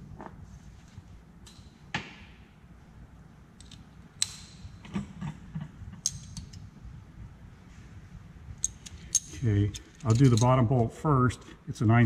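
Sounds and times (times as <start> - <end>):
metal hand tools clinking: 8.6 - 10.6.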